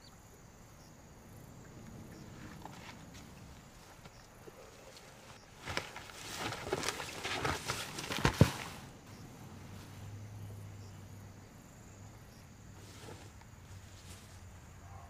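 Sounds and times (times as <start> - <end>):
wood crackling and snapping: 5.5 - 8.8.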